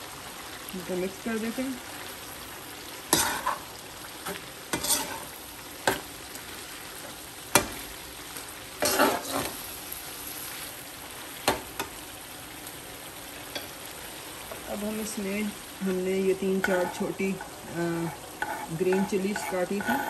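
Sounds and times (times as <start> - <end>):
meat sizzling in oil: 0.0 - 20.0
metal spoon scraping a wok: 3.2 - 3.6, 4.2 - 6.0, 8.8 - 9.6, 16.6 - 20.0.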